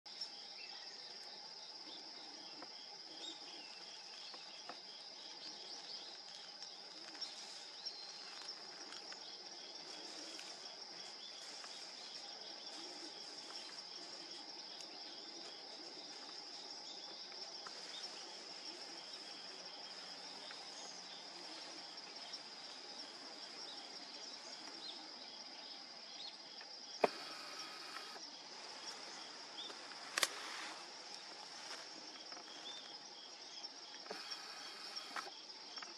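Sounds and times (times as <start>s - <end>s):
insects trilling: 0.1s - 35.9s
sharp click: 30.1s - 30.4s.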